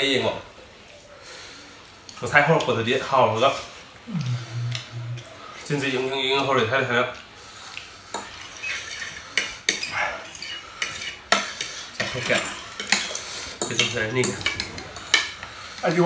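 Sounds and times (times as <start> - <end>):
cutlery scraping on plates: 8.1 - 15.9.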